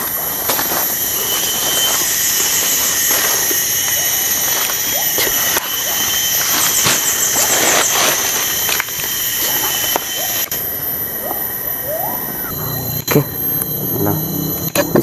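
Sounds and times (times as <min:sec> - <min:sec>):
leaves and undergrowth rustling: 0:00.0 - 0:13.6
high-pitched insect drone: 0:00.0 - 0:15.0.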